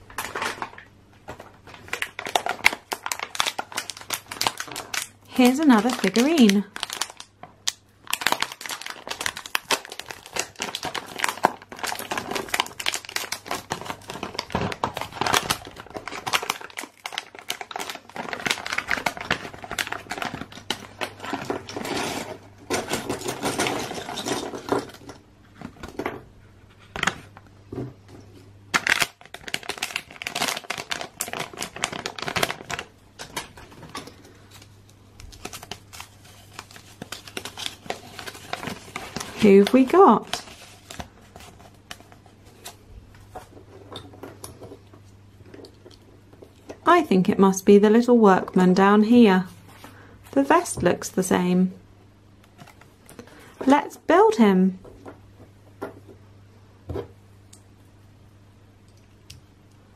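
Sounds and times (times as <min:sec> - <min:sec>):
foil bag crinkling and tearing: 0:00.0 - 0:25.0, 0:28.7 - 0:43.4.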